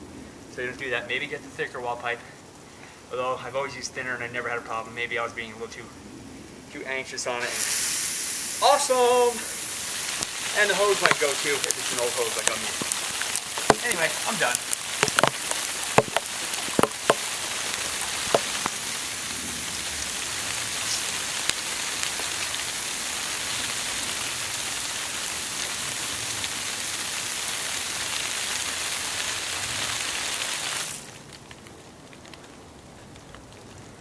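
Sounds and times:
water spray hissing on grass: 0:06.8 - 0:31.5.

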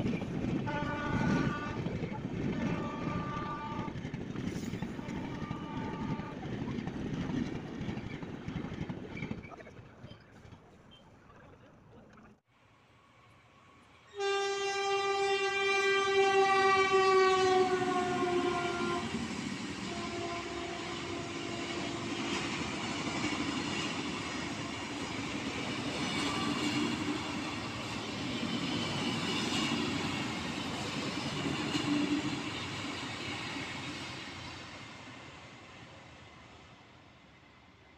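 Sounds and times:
train wheels clickety-clack: 0:00.0 - 0:10.7, 0:17.6 - 0:36.0
train horn blaring: 0:00.6 - 0:04.0, 0:05.0 - 0:06.5, 0:14.1 - 0:22.4.

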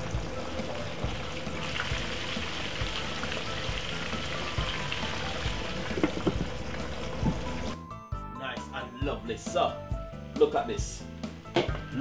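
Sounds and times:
chicken sizzling in oil: 0:00.0 - 0:07.8
oil popping: 0:00.0 - 0:07.8.

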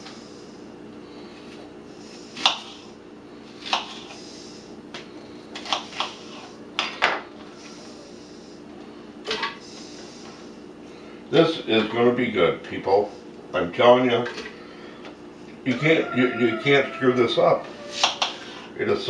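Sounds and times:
knife chopping on cutting board: 0:02.4 - 0:02.8, 0:03.6 - 0:04.1.

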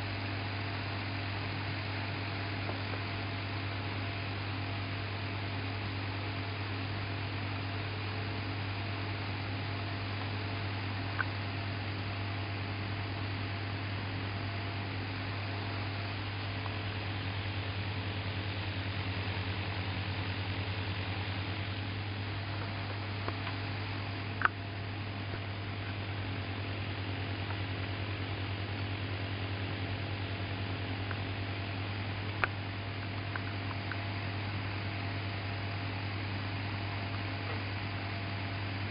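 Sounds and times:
faint ticks: 0:11.1 - 0:11.4.

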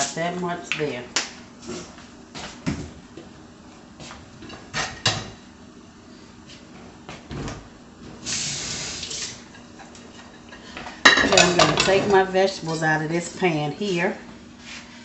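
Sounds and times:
knocks and clunks in kitchen: 0:02.6 - 0:03.4, 0:06.7 - 0:08.2
steady hiss: 0:08.2 - 0:09.5.

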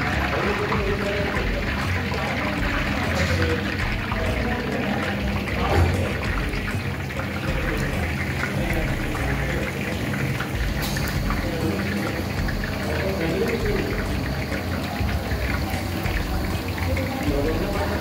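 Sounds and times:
hot oil sizzling and crackling: 0:00.0 - 0:18.0.

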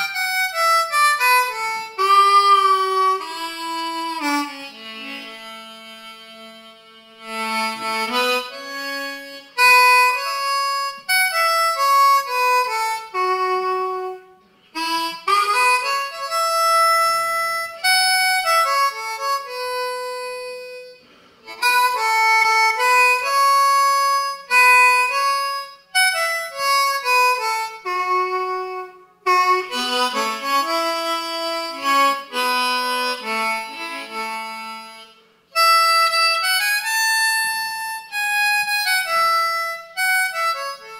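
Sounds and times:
blues harmonica: 0:00.0 - 0:40.9.

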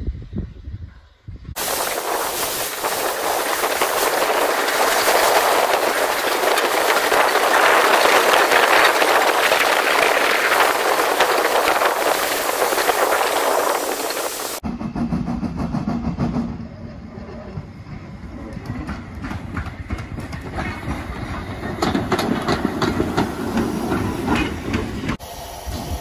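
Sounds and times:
steam locomotive running: 0:00.2 - 0:26.0
steam hiss: 0:01.6 - 0:15.3, 0:19.0 - 0:26.0.

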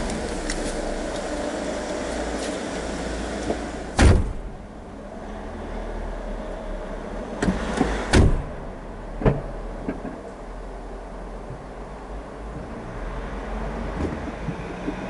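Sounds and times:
car door thumping shut: 0:04.0 - 0:04.6, 0:07.4 - 0:08.6.

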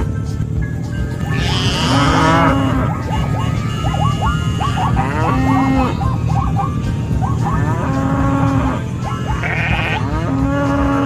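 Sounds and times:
low rumble: 0:00.0 - 0:09.1
wavering bleats: 0:01.2 - 0:06.4, 0:07.6 - 0:11.0.

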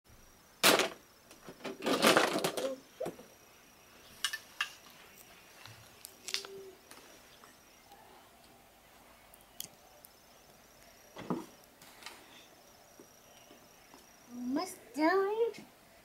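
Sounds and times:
plastic toy track pieces clattering: 0:01.7 - 0:02.8.

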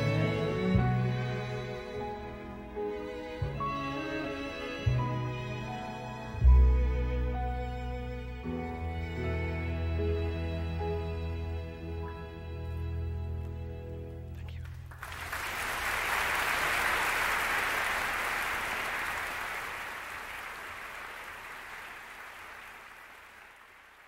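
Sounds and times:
audience applause: 0:14.6 - 0:24.0.

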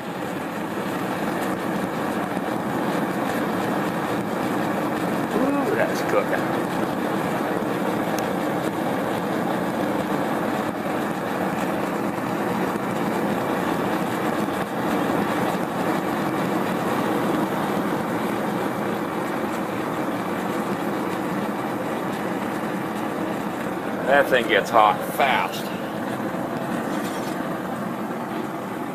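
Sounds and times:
gas burner flame roaring: 0:00.0 - 0:28.9.

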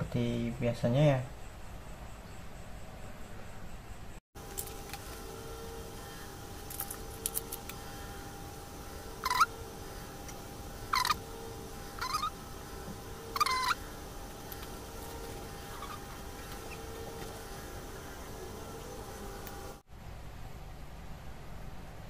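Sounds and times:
faint steady hum: 0:00.0 - 0:22.0
poultry calls: 0:04.8 - 0:19.8.

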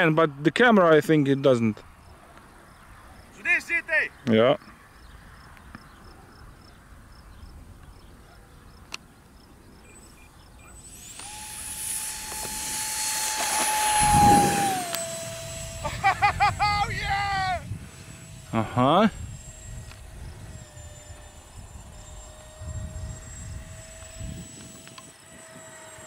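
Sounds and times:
electric ducted fans whining: 0:09.8 - 0:26.0.

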